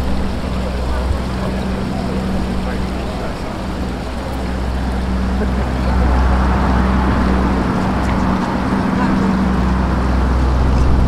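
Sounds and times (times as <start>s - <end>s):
street noise: 0.0s - 11.0s
vehicle engine humming: 0.0s - 11.0s.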